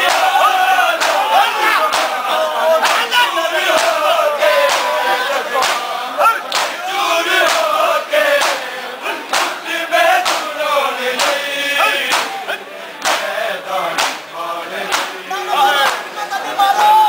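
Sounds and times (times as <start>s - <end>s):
men chanting: 0.0s - 17.0s
hands slapping chests: 1.0s - 2.2s, 4.6s - 4.9s, 5.6s - 5.9s, 6.5s - 6.8s, 7.4s - 7.7s, 8.4s - 8.6s, 9.3s - 9.6s, 10.2s - 10.5s, 11.2s - 12.4s, 13.0s - 14.3s, 14.9s - 15.2s.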